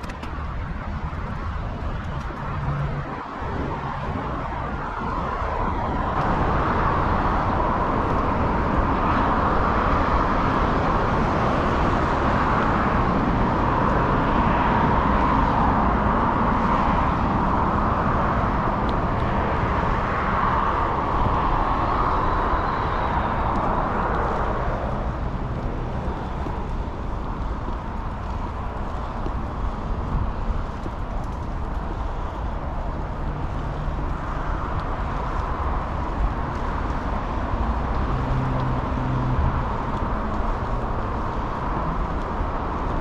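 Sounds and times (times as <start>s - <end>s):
bicycle tyres rolling: 0.0s - 43.0s
wind on microphone: 0.0s - 43.0s.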